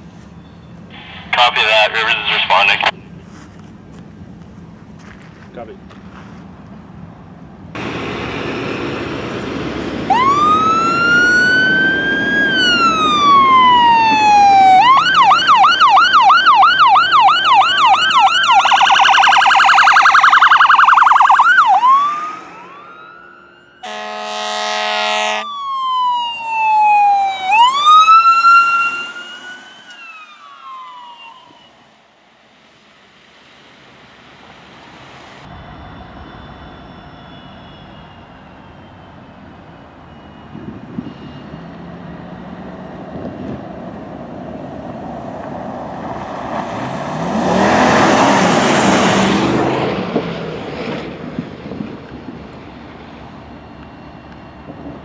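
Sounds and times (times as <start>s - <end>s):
fire truck siren: 0.9s - 2.9s, 7.8s - 32.2s, 35.4s - 55.0s
horn blast: 23.8s - 25.5s.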